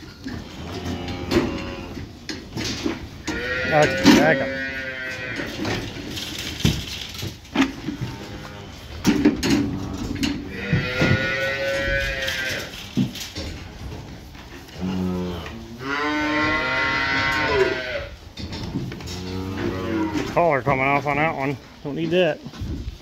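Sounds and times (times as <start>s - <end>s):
cattle mooing: 0.4s - 2.1s, 3.2s - 5.9s, 7.8s - 12.7s, 14.7s - 18.2s, 19.0s - 20.3s.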